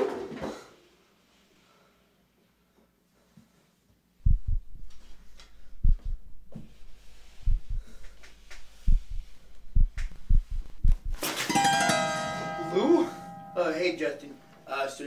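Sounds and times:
heartbeat thumps: 4.2 - 11.2.

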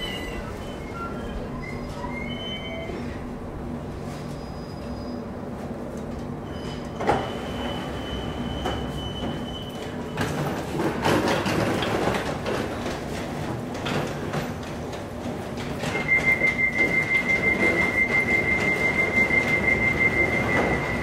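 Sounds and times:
door warning beeps: 0.0 - 3.2, 6.5 - 10.2
train equipment hum: 0.0 - 21.0.

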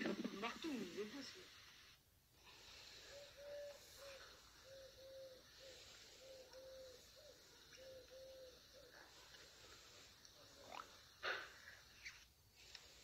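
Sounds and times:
dove cooing: 2.9 - 9.8.

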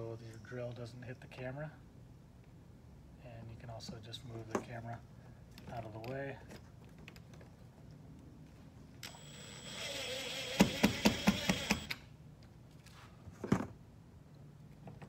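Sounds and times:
impact driver whirring and clacking: 9.0 - 12.0.

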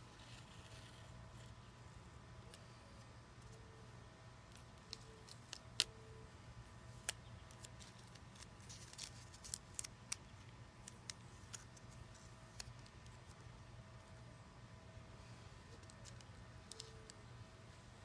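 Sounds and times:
tape peeling off crackles: 6.9 - 13.4.

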